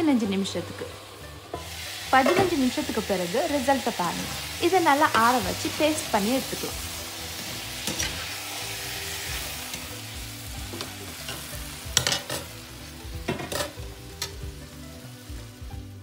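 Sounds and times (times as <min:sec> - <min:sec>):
vegetables sizzling in a frying pan: 0:00.0 - 0:16.0
spoon knocking and scraping pan: 0:01.5 - 0:02.7, 0:10.6 - 0:12.5, 0:13.2 - 0:14.4.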